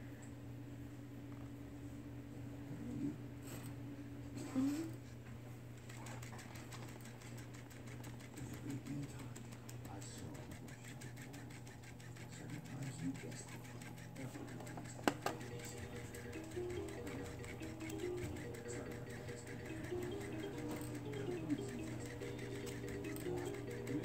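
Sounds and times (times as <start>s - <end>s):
steady low hum: 0.0s - 24.0s
fabric toy clicking and rustling: 5.8s - 24.0s.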